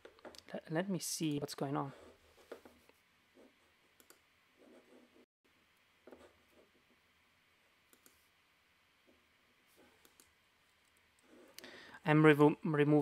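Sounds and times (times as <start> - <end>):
faint computer mouse clicks: 4.0 - 4.2, 7.9 - 8.2, 10.0 - 11.0.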